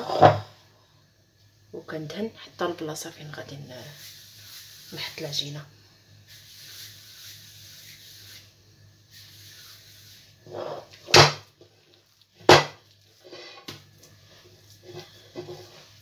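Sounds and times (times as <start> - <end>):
bowl scraping: 0.0 - 0.6, 9.2 - 11.1, 13.2 - 13.7, 14.3 - 16.0.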